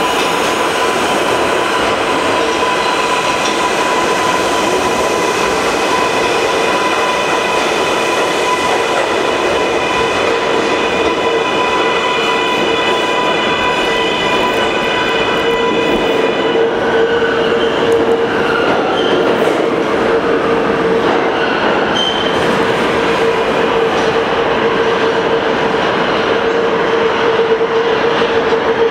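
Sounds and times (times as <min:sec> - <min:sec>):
subway wheels rumbling on rail: 0:00.0 - 0:28.9
wheel squeals: 0:21.9 - 0:22.4.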